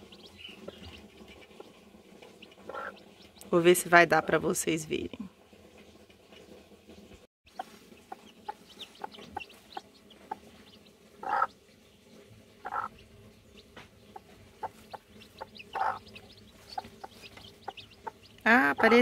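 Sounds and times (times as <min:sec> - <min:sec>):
hen clucking: 0:00.0 - 0:03.5, 0:07.5 - 0:11.8, 0:12.5 - 0:19.0.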